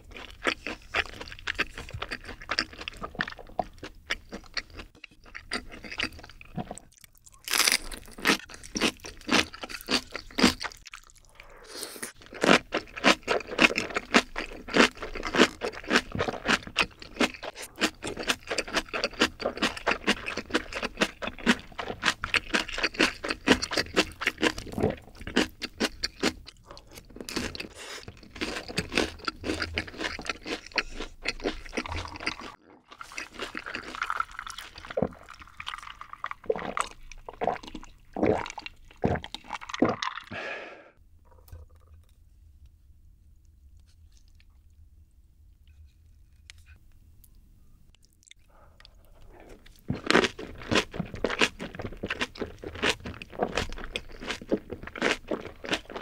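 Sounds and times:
crunchy wet chewing: 0.0 - 11.5, 12.1 - 40.2, 46.3 - 56.0.

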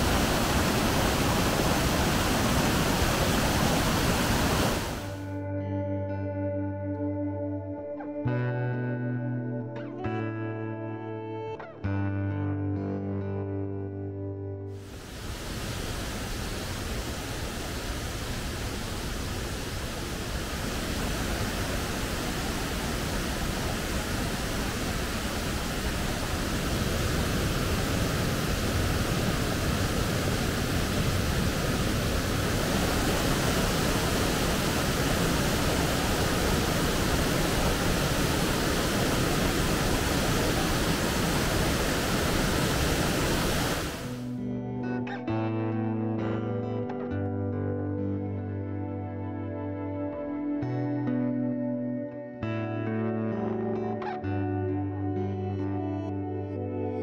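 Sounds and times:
waterfall rushing: 0.0 - 5.2, 14.8 - 44.3.

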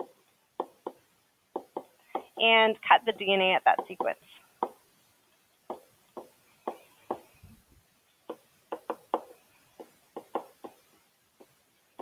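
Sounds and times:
stylus tapping on tablet screen: 0.0 - 2.6, 3.2 - 4.8, 5.7 - 7.3, 8.3 - 12.0.

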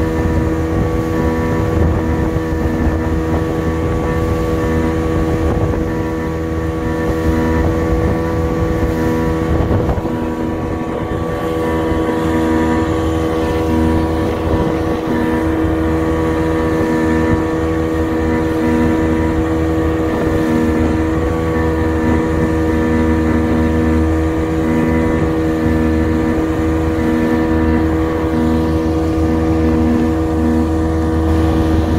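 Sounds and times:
outboard motor running: 0.0 - 31.9
wake rushing: 0.0 - 31.9.

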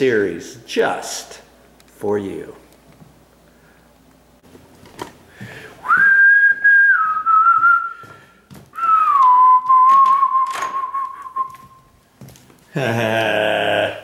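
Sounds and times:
person whistling: 5.8 - 11.8.

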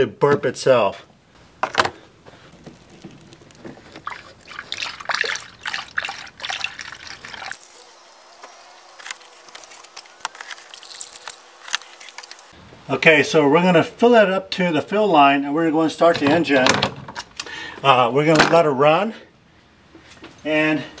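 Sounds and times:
coolant pouring through a funnel: 2.3 - 12.6.

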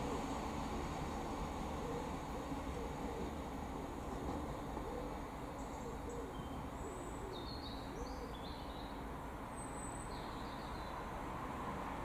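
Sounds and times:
bird cooing low: 1.8 - 3.4, 4.8 - 8.4
small birds chirping: 5.6 - 11.1.

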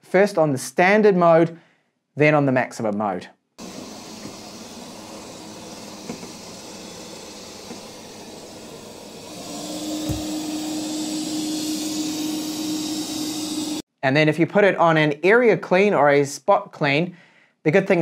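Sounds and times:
robot vacuum cleaner running: 3.6 - 13.8.

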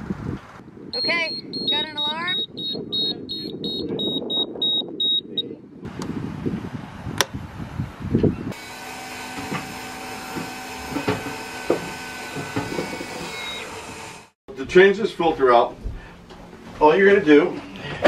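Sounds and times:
fast high alarm beeps: 1.0 - 5.4
electric fuel pump hum: 8.5 - 14.3.

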